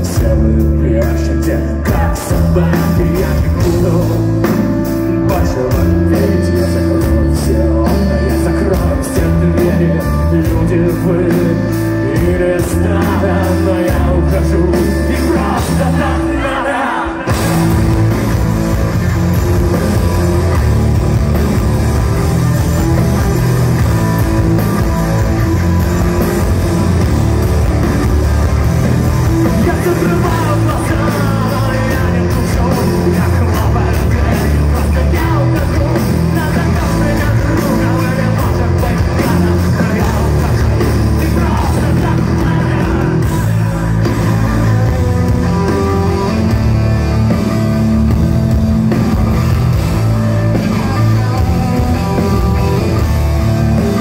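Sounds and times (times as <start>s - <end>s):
person singing: 0.0s - 18.2s, 29.2s - 46.6s
rock band playing: 0.0s - 54.0s.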